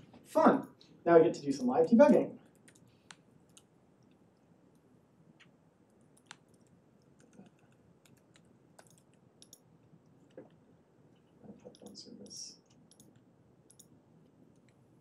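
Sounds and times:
keyboard keystrokes: 6.2 - 9.6.

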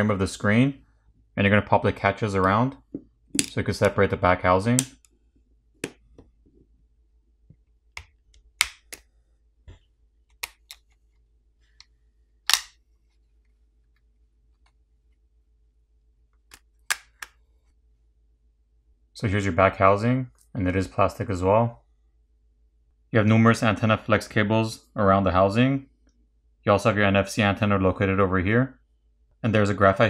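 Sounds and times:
plastic catches snapping loose: 12.5 - 12.8
sharp plastic clicks and snaps: 12.5 - 12.8.

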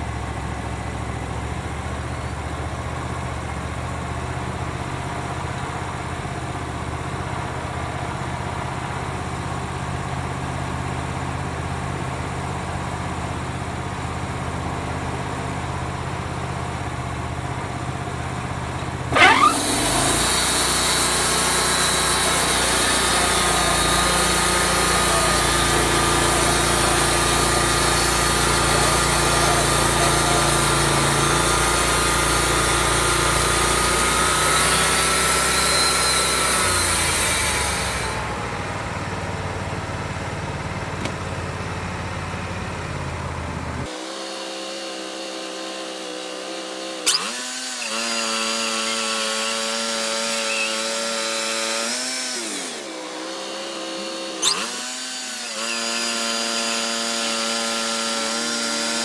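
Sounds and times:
sawmill engine running: 0.0 - 59.0
saw blade hissing through wood: 19.1 - 38.4, 43.8 - 59.0.

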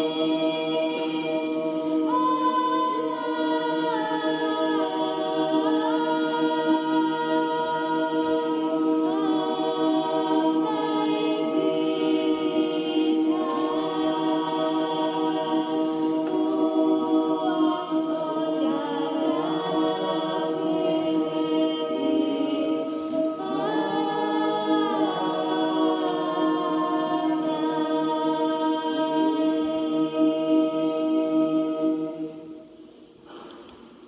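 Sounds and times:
unaccompanied choral singing: 0.0 - 33.7.

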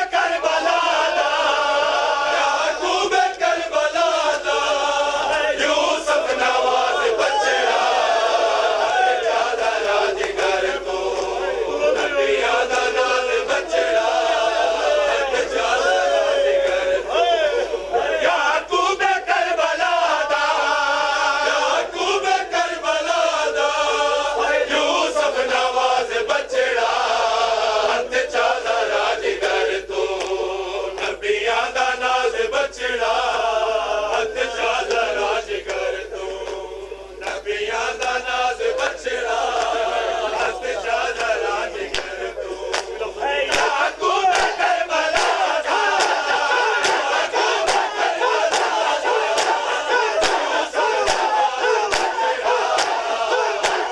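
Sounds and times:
men chanting with crowd: 37.1 - 53.9
hands slapping chests: 41.2 - 53.9.

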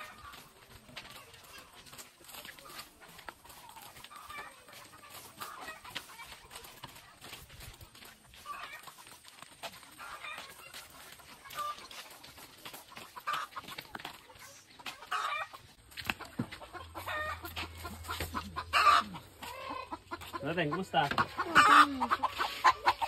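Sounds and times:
chickens clucking: 0.0 - 23.0.

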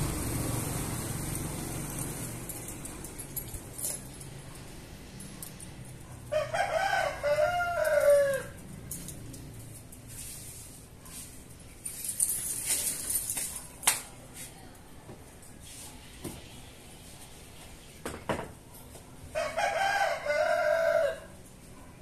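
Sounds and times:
rooster crowing: 6.3 - 8.6, 19.3 - 21.4.

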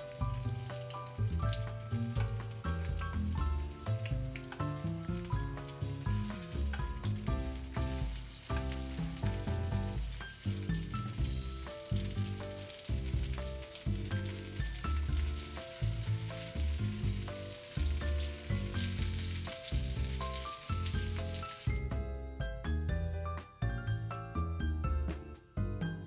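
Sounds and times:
food sizzling in oil: 0.0 - 21.9
background music: 0.0 - 26.0.

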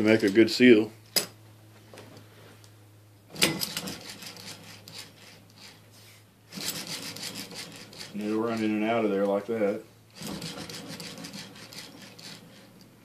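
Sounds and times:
metal rubbing and rattling: 3.3 - 9.4, 10.1 - 13.0.

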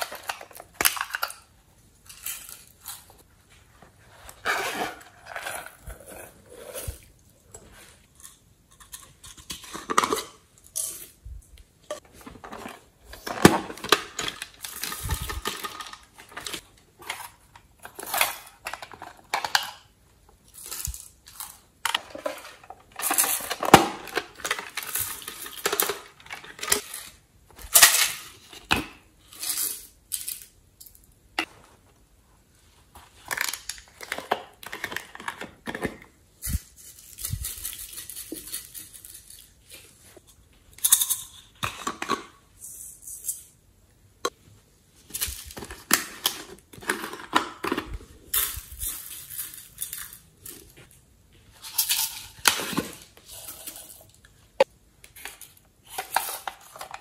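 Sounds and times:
plastic containers clicking and clattering: 0.0 - 3.2, 11.9 - 20.0, 21.8 - 29.1, 33.2 - 36.2, 40.8 - 42.4, 45.1 - 48.6, 51.7 - 57.0.

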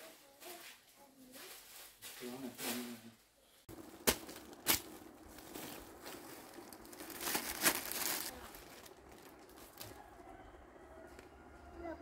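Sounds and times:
plastic bags rustling: 3.7 - 10.1.

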